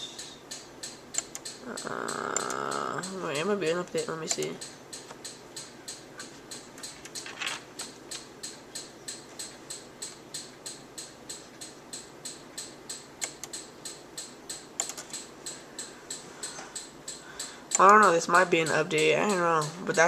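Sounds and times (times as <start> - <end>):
rapid ticking: 0.0 - 20.0.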